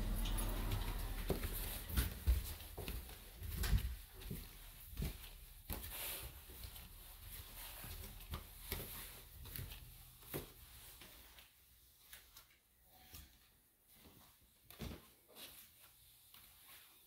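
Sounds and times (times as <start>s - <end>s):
footsteps on carpet: 0.0s - 11.6s.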